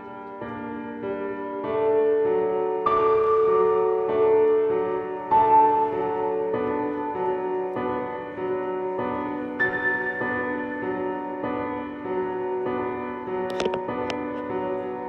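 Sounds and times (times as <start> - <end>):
slow piano chords: 0.0 - 15.0
sharp clicks: 13.5 - 14.2.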